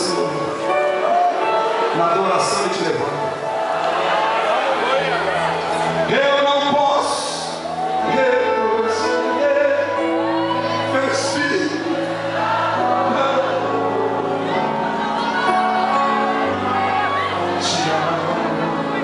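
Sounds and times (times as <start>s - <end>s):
man singing: 6.0s - 16.7s, 17.3s - 19.0s.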